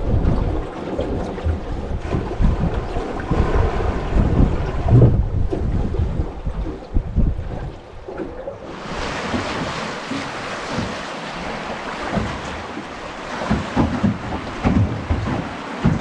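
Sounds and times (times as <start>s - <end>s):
river water rushing past boat: 0.0s - 16.0s
low bumps on boat hull: 1.1s - 6.0s, 8.9s - 16.0s.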